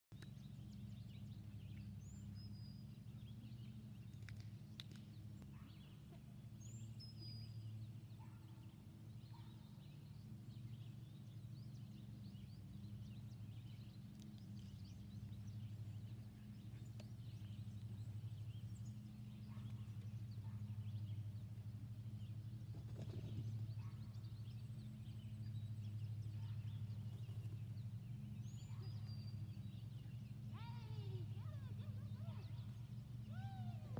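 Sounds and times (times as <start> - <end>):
steady low hum: 0.1 - 33.9.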